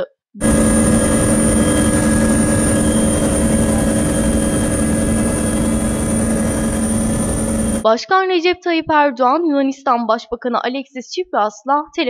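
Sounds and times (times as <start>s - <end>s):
helicopter engine and rotor rumble: 0.4s - 7.9s
high-pitched whine: 0.4s - 7.9s.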